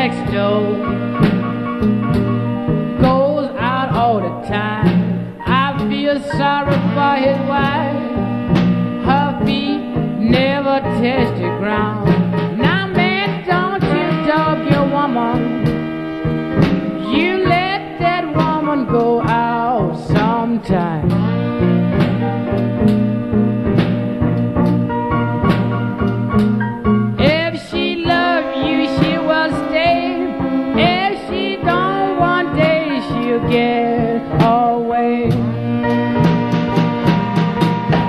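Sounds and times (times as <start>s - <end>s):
electric blues music: 0.0s - 38.0s.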